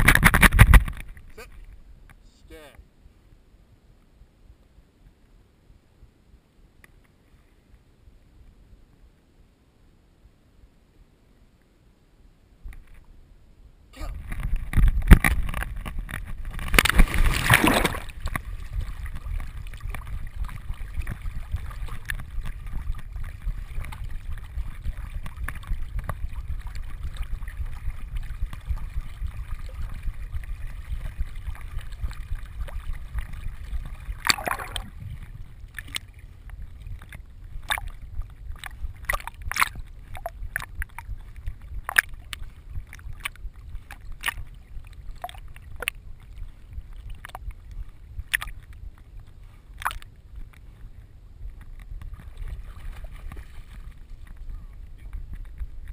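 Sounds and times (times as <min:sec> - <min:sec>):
water churning: 0:14.0 - 0:49.0, 0:49.6 - 0:50.6, 0:51.8 - 0:55.9
dog splashing into water: 0:16.4 - 0:35.0.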